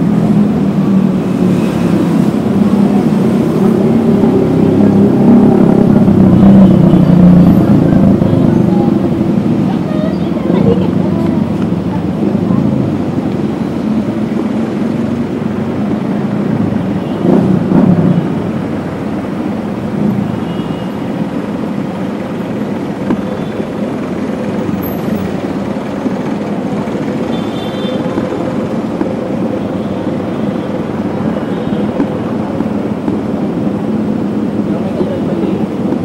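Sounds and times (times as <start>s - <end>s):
loud vehicle passing: 0.0s - 20.4s
road traffic: 0.0s - 36.0s.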